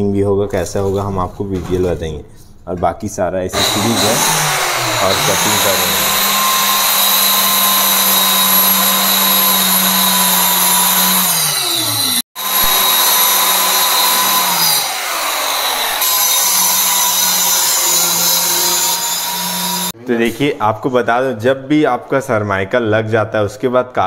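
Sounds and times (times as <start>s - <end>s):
circular saw cutting board: 3.5s - 20.0s.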